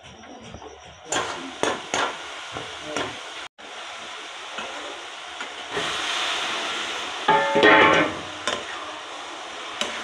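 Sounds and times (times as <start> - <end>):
gravy hissing in a pan: 1.3 - 10.0
utensils clinking on metal pan: 7.3 - 8.6.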